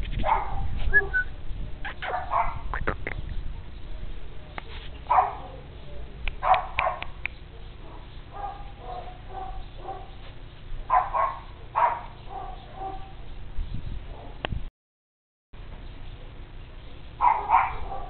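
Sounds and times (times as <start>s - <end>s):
dog yipping softly: 0.2s - 2.6s
dog barking sharply: 6.4s - 7.2s, 10.9s - 13.1s, 17.2s - 18.0s.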